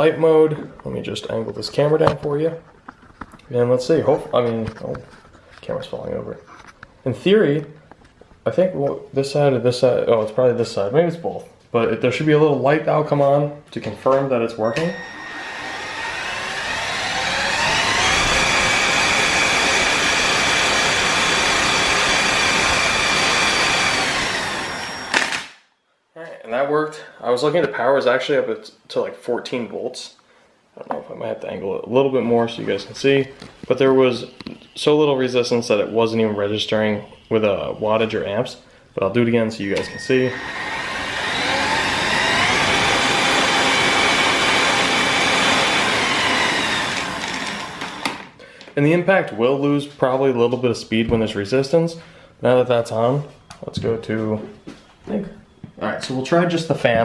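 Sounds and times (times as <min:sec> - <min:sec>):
impact driver whining: 0:14.6 - 0:25.6, 0:39.7 - 0:48.4.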